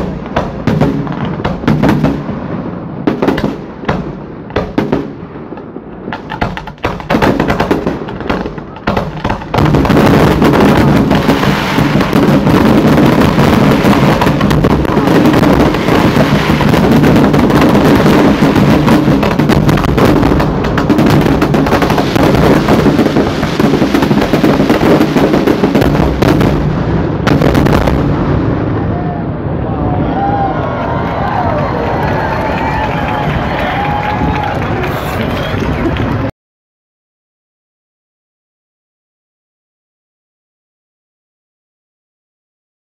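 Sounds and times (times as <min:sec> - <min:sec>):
firework shell bursts and crackle: 0:00.0 - 0:28.6.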